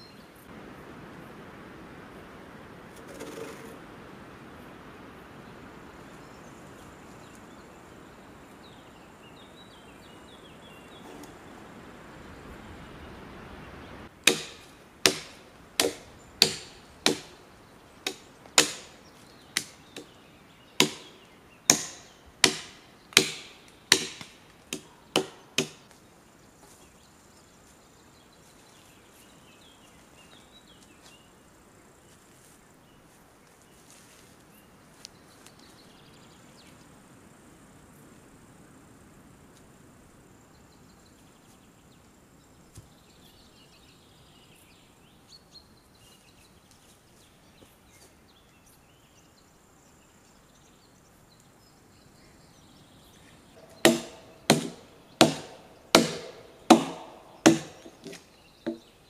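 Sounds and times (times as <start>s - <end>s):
faint insect or bird chirps: 0.0s - 0.5s, 4.6s - 14.8s, 24.9s - 57.4s
axe chopping log: 14.2s - 17.4s, 18.0s - 19.0s, 19.6s - 20.1s, 20.8s - 25.8s, 53.6s - 58.9s.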